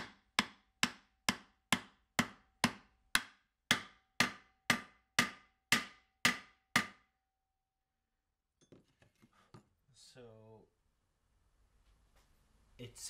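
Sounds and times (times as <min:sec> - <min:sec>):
hammer striking wood block: 0:00.0 - 0:07.2.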